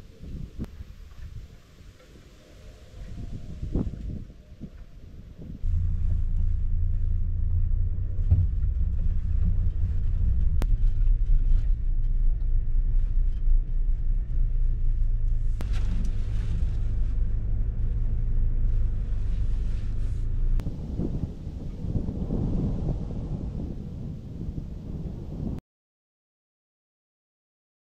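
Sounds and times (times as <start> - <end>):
engine rumbling: 0.0 - 25.6
faint rustling: 0.6 - 21.8.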